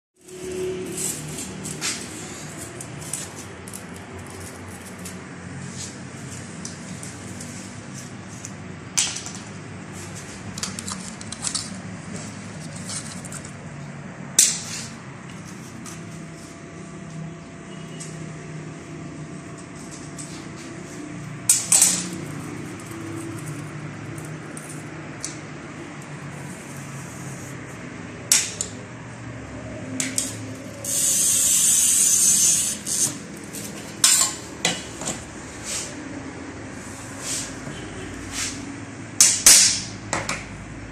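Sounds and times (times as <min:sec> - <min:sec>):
glass cutter scratching glass: 0:00.3 - 0:05.6, 0:30.2 - 0:34.4.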